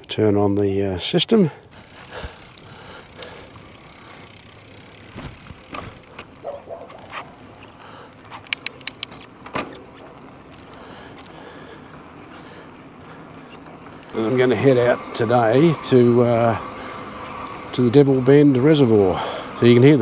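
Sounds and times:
bike rolling on road: 0:00.0 - 0:20.0
bike knocks and rattles: 0:01.7 - 0:11.3
sharp ticks: 0:06.1 - 0:09.3.

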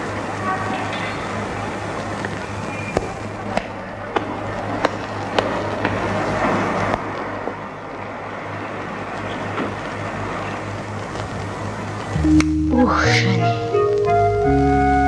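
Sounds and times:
low hum: 0:10.3 - 0:15.0
sustained music tones: 0:12.2 - 0:15.0.

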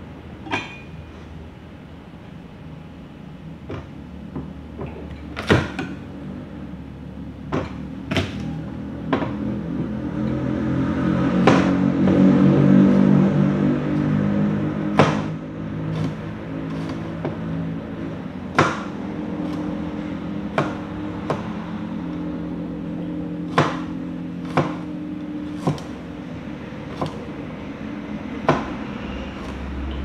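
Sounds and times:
cleaver chopping on cutting board: 0:14.9 - 0:17.5, 0:18.5 - 0:21.6, 0:23.5 - 0:24.9, 0:25.5 - 0:26.0, 0:26.9 - 0:27.3.

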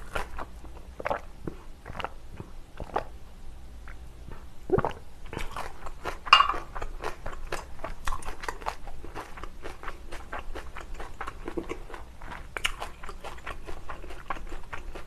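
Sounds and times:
chewing and wet mouth sounds: 0:00.0 - 0:03.2, 0:03.8 - 0:15.0
glass jar clinking on table: 0:06.3 - 0:06.6.

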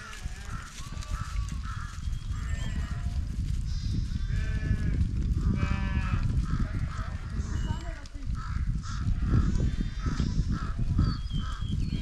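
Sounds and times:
sheep bleating: 0:00.0 - 0:07.7.

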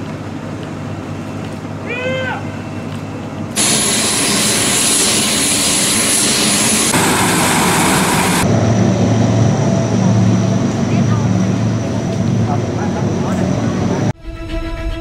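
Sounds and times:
turboprop engines at high power: 0:03.2 - 0:14.2.

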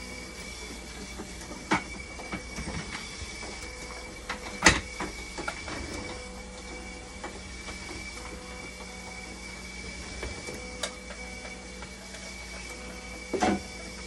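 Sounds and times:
machine humming and whining: 0:00.0 - 0:14.0
knocks and clicks handling machine: 0:00.1 - 0:14.0.

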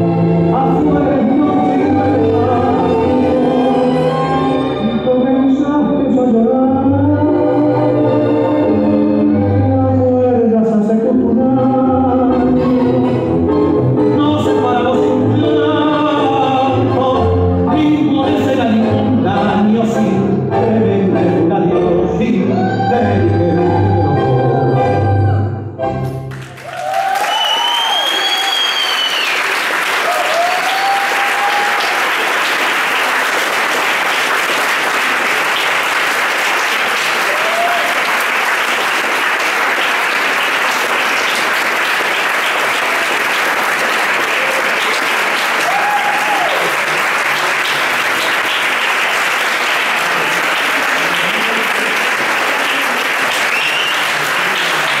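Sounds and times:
tango music: 0:00.0 - 0:26.6, 0:30.6 - 0:55.0
audience applauding: 0:26.3 - 0:55.0
audience cheering: 0:26.5 - 0:34.1, 0:34.9 - 0:55.0.

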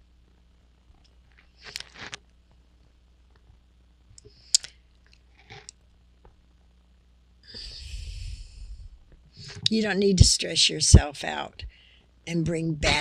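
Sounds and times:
mouth clicks and lip smacks: 0:04.2 - 0:05.8
breath blowing on microphone: 0:07.5 - 0:09.7.

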